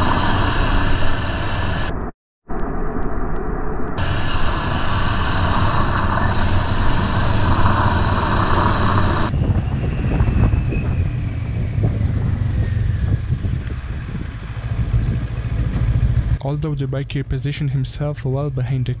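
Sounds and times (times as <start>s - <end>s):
motorcycle engine drone: 0.0s - 16.4s
wind rushing over microphone: 0.0s - 16.4s.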